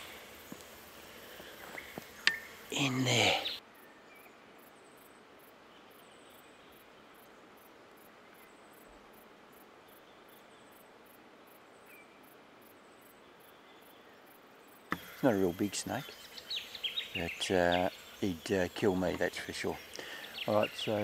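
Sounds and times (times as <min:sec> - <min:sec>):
faint chirps: 0:00.0 - 0:05.1, 0:14.9 - 0:21.0.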